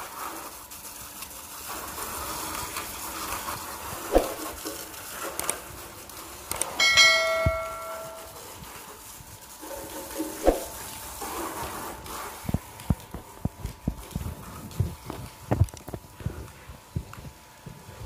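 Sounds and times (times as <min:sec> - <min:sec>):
water spraying from garden hose: 0:00.0 - 0:06.5, 0:08.3 - 0:16.1
bell-like ding sound effect: 0:06.8 - 0:08.4.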